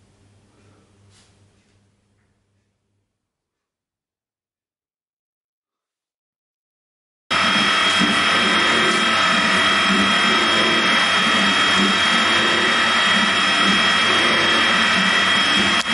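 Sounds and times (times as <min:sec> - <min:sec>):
milling machine whining: 0:07.3 - 0:15.9.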